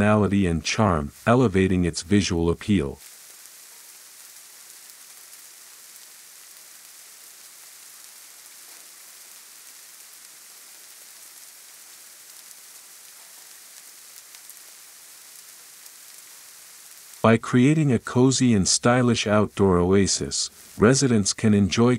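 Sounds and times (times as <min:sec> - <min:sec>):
faint steady hiss: 0:00.0 - 0:21.9
faint ticks: 0:12.3 - 0:14.7.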